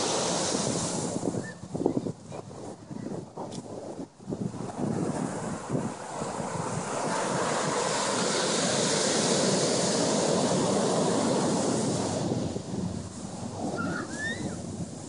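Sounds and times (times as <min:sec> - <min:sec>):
ocean surf breaking: 0:00.0 - 0:01.4, 0:04.4 - 0:15.0.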